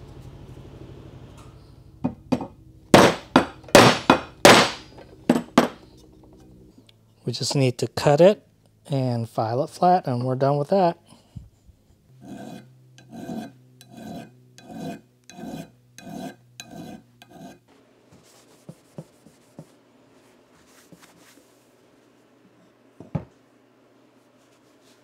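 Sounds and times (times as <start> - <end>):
sharp knock: 3.0 - 4.9
hand file rasping on steel: 12.2 - 17.6.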